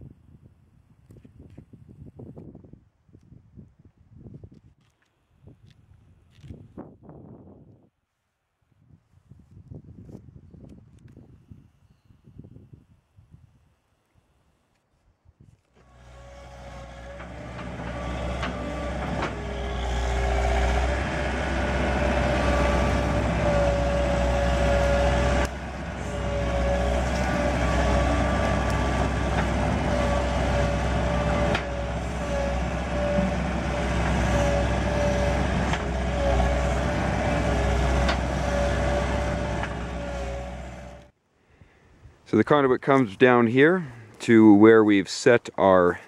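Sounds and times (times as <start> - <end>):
diesel engine running hard: 15.8 - 41.1.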